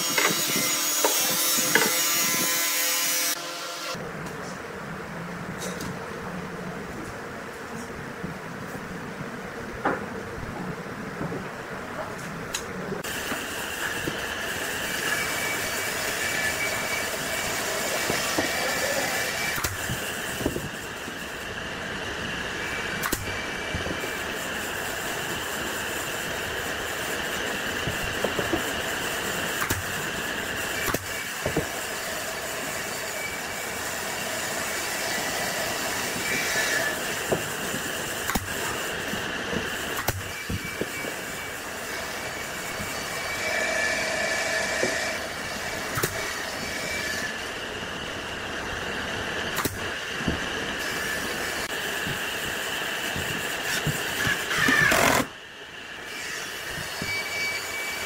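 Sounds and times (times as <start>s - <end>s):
machine running with high whine: 12.8s - 58.0s.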